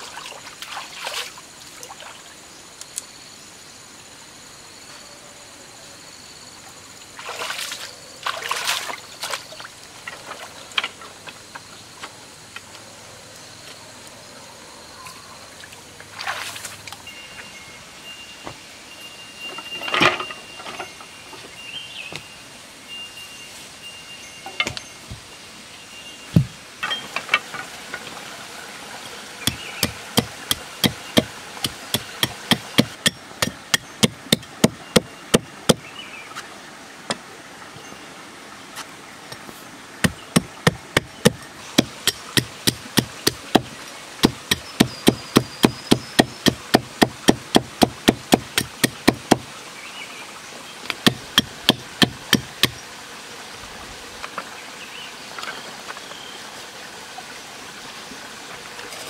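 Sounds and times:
hatchet chopping wooden sticks: 29.4s - 35.8s, 40.0s - 49.5s, 50.9s - 52.8s.

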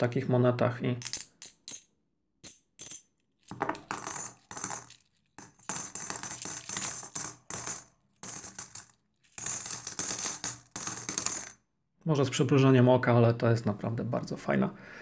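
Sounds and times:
coins jingling and clinking: 1.0s - 11.6s.

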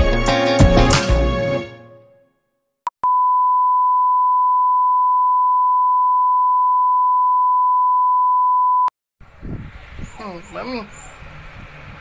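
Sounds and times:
brief beep: 3.0s - 8.9s
steady pure test tone beep: 3.0s - 8.9s.

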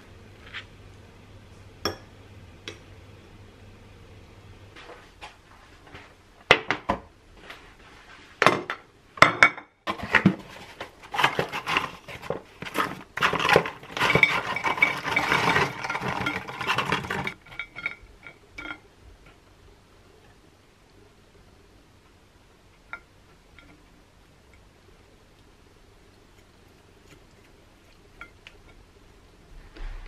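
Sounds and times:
knocks and clinks on plate: 1.9s - 2.1s
chips rattling onto plate: 11.1s - 18.0s.

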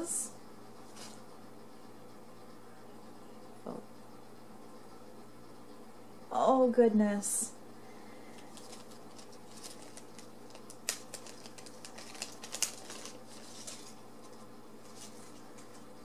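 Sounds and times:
packaging clicks and rustles: 8.3s - 15.8s.

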